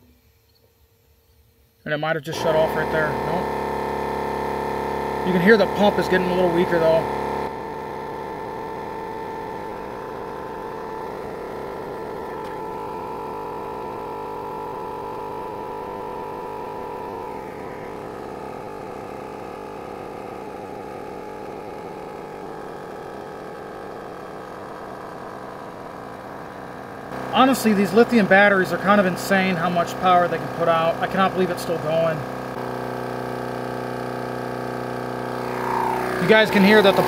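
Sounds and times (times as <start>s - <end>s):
small air pump running: 0.0s - 37.0s.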